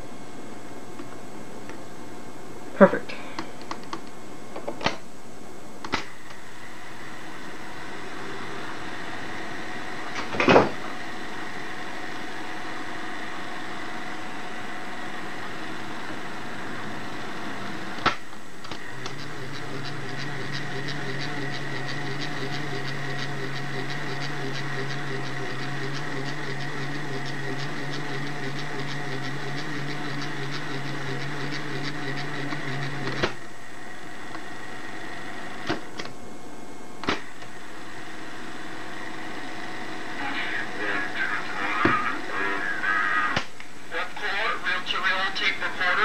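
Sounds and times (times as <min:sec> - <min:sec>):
tape recorder motor hum: 0:00.0 - 0:46.0
tape transport ticking: 0:18.6 - 0:33.4.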